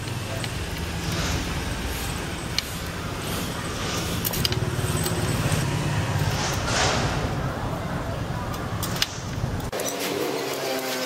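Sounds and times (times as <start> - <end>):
bicycle spokes clicking: 0.0 - 3.0, 4.0 - 6.7, 8.4 - 9.9
low rumble of street traffic: 0.0 - 10.8.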